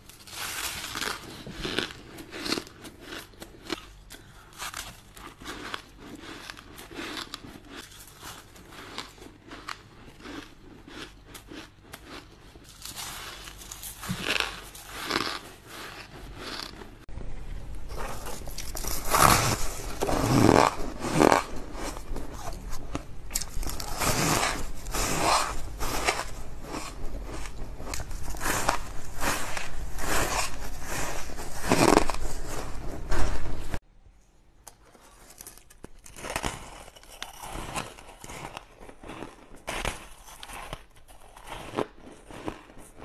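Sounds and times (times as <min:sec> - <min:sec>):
chewing ice: 0:00.2 - 0:17.0.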